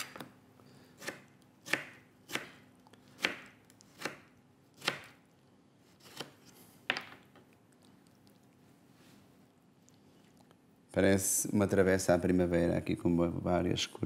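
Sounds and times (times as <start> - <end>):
knife chopping on plastic board: 1.0 - 2.6, 3.2 - 5.2.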